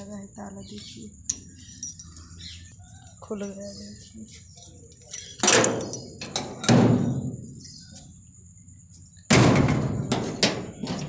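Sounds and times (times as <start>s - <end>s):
metal gate clanging: 5.0s - 7.8s, 9.4s - 11.0s.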